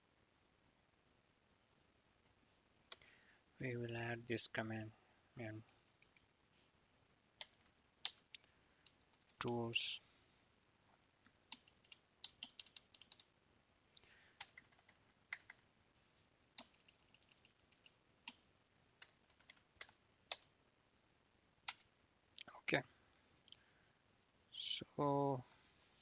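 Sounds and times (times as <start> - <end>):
faint keyboard keystrokes: 11.5 - 13.3.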